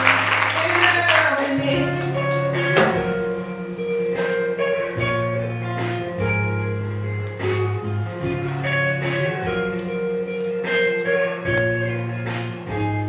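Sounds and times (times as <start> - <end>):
audience applause: 0.0 - 2.5
guitar-led backing music: 0.0 - 13.0.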